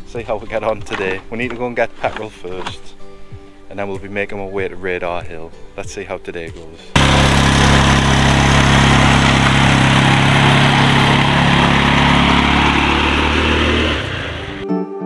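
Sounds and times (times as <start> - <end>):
quad bike engine running: 7.0 - 14.6.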